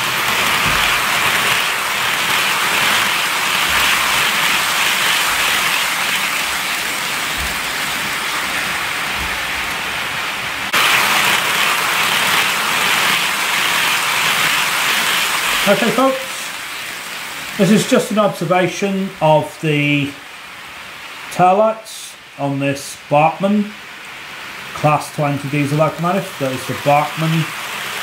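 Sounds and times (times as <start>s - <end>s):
model train wheels rattling on rails: 0.0s - 7.4s, 10.8s - 16.2s.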